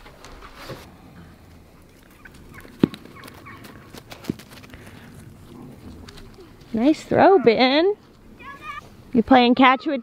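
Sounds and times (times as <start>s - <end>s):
farm fowl calling: 1.8s - 4.1s.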